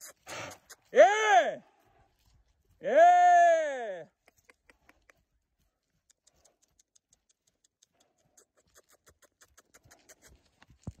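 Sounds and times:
faint scratchy ticks: 0:04.2 - 0:11.0.

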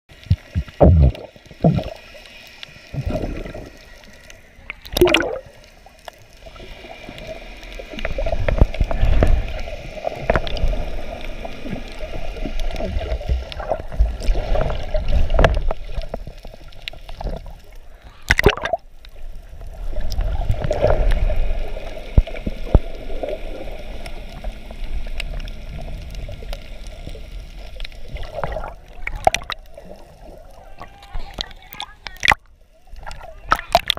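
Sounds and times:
muffled underwater rushing: 0:00.1 - 0:33.9
steady hum: 0:00.2 - 0:02.0.

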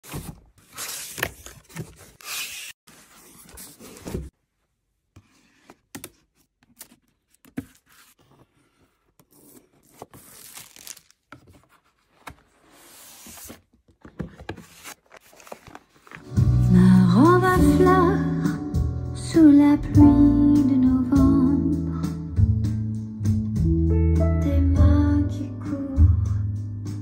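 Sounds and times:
plastic wrap tearing and crinkling: 0:10.1 - 0:11.3.

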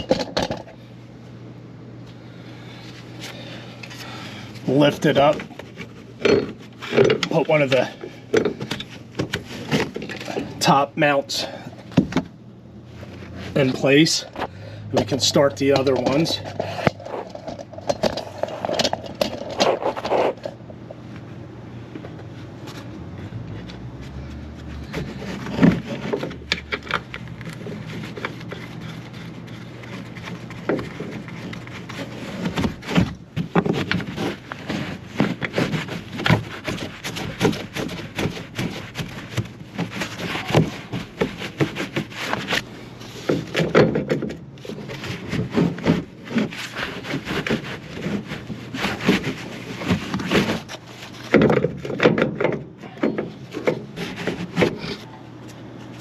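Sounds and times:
steady low hum: 0:00.0 - 0:56.0
metal knocks clinks and scrapes: 0:04.7 - 0:10.7, 0:13.5 - 0:21.0.

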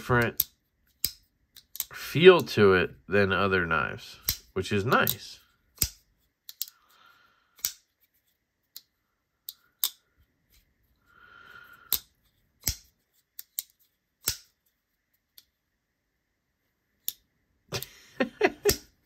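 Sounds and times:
folding knife metallic snaps: 0:04.2 - 0:05.2, 0:07.6 - 0:07.8, 0:11.9 - 0:14.6
soft handling rustle: 0:07.8 - 0:09.2, 0:12.1 - 0:15.6.

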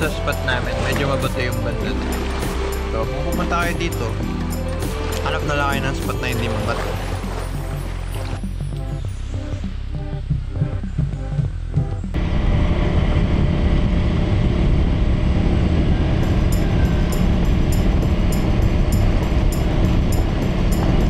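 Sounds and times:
background music: 0:00.0 - 0:12.2, 0:16.0 - 0:21.0
wind rushing: 0:12.2 - 0:21.0.

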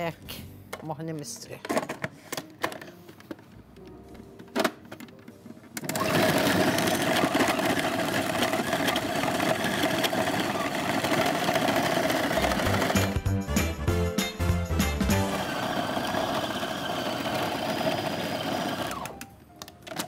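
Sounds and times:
electric meat mincer whining: 0:05.8 - 0:13.3, 0:15.1 - 0:19.2.

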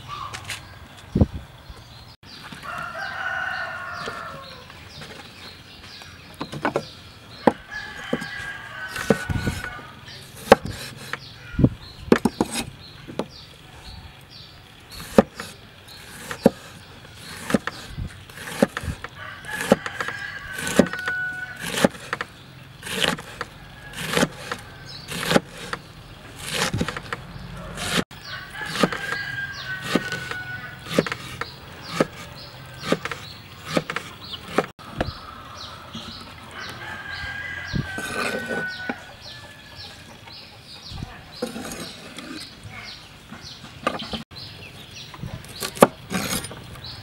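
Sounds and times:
rooster crowing: 0:02.6 - 0:04.7, 0:07.6 - 0:10.2, 0:19.2 - 0:21.7, 0:23.5 - 0:25.1, 0:27.5 - 0:31.1, 0:35.1 - 0:40.1
cleaver chopping on wooden board: 0:10.4 - 0:11.2, 0:18.4 - 0:25.8, 0:26.4 - 0:27.2, 0:28.6 - 0:35.1.

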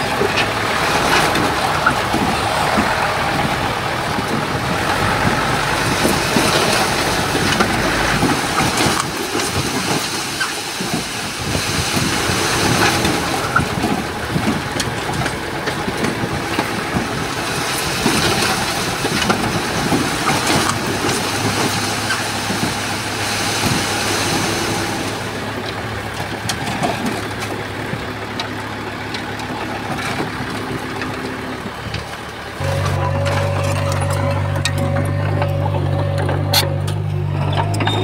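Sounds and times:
diesel machinery engine clattering: 0:00.0 - 0:38.0
steady low engine drone: 0:22.4 - 0:38.0.

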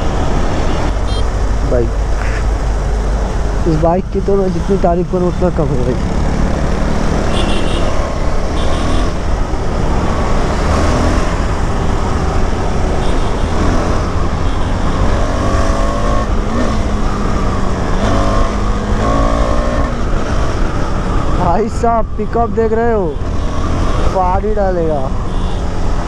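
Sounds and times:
motorcycle engine accelerating: 0:13.4 - 0:20.5.

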